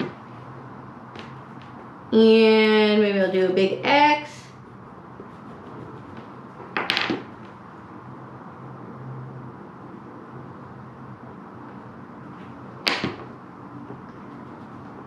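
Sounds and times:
faint room noise: 0:00.0 - 0:15.0
scratchy drawing stroke on paper: 0:05.2 - 0:06.3.

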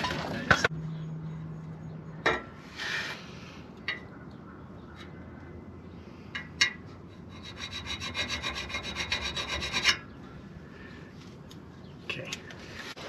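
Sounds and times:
steel pipe scraping: 0:02.6 - 0:03.4, 0:07.2 - 0:10.1.

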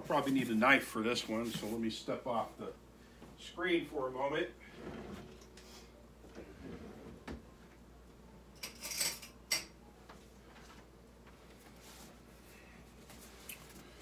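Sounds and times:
metal utensils clattering: 0:08.6 - 0:09.7.

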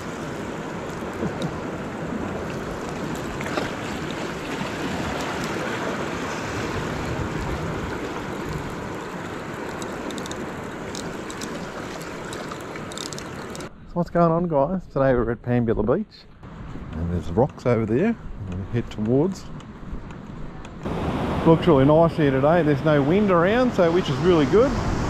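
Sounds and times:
ocean surf washing in: 0:00.0 - 0:13.7, 0:20.8 - 0:25.0.

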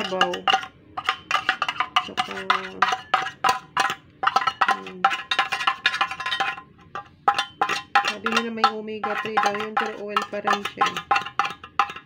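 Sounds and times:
fork tapping and scraping tin can: 0:00.0 - 0:12.0.

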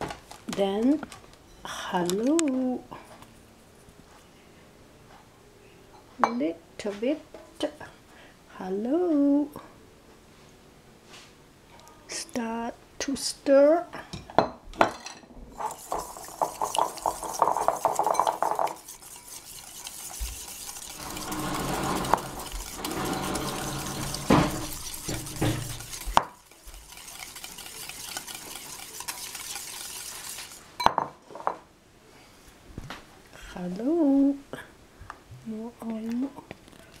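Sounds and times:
utensil scraping a bowl: 0:15.6 - 0:30.7.

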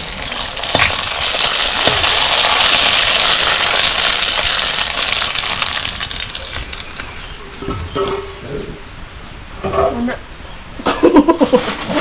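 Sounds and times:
dough sizzling in hot oil: 0:00.0 - 0:07.4.

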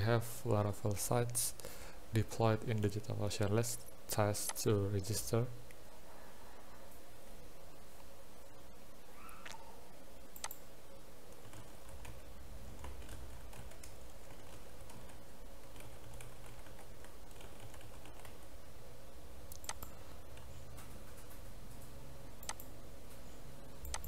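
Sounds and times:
faint steady hum: 0:00.0 - 0:24.0
computer keyboard typing: 0:10.4 - 0:10.6, 0:11.3 - 0:18.5, 0:19.5 - 0:22.7, 0:23.8 - 0:24.0.

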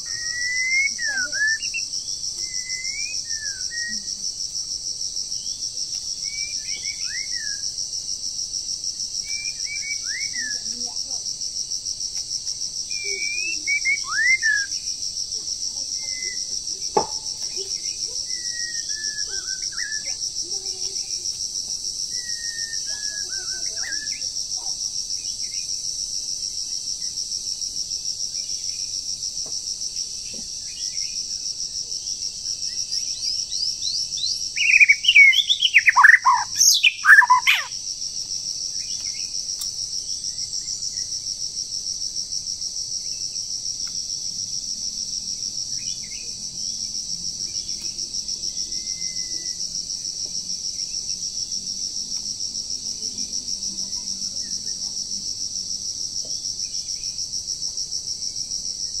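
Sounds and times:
bird song whistles: 0:00.0 - 0:04.1, 0:06.2 - 0:07.6, 0:09.3 - 0:10.6, 0:12.9 - 0:14.8, 0:18.3 - 0:20.1, 0:22.1 - 0:24.3, 0:33.5 - 0:37.7
insects droning: 0:00.0 - 0:59.0.

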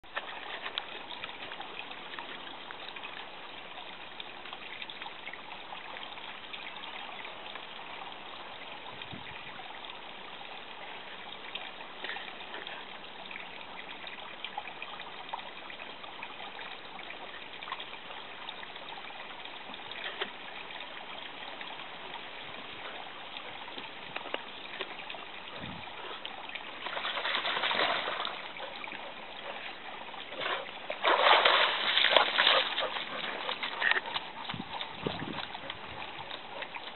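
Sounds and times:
water trickling: 0:00.0 - 0:36.9
dog splashing in water: 0:26.7 - 0:28.9, 0:30.3 - 0:35.7.

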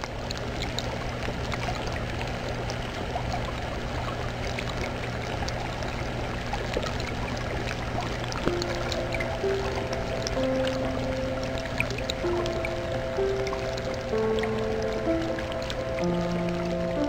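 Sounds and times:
low steady hum: 0:00.0 - 0:17.0
water trickling and splashing: 0:00.0 - 0:17.0
droplet ticks: 0:04.5 - 0:17.0.

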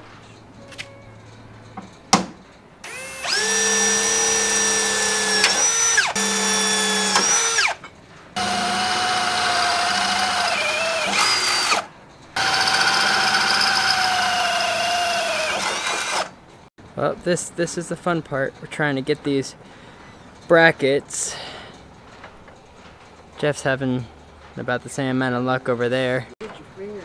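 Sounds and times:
electric drill whining: 0:02.8 - 0:07.8, 0:08.4 - 0:16.3.

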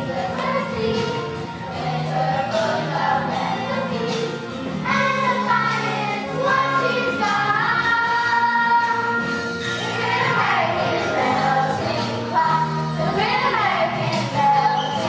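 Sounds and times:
children's chorus singing: 0:00.0 - 0:15.0
instrumental backing music: 0:00.0 - 0:15.0.

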